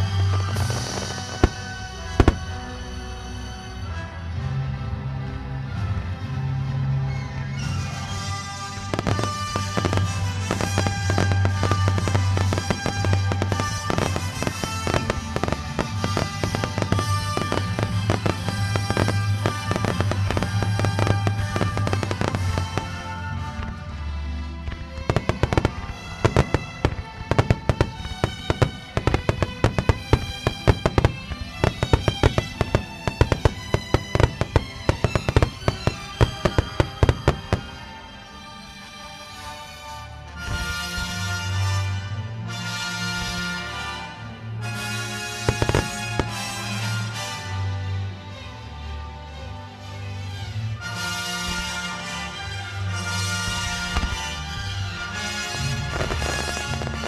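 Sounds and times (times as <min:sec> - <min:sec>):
fireworks bursting with bangs: 0:00.0 - 0:03.0, 0:07.7 - 0:23.8, 0:24.6 - 0:38.0, 0:44.6 - 0:47.5, 0:52.9 - 0:57.0.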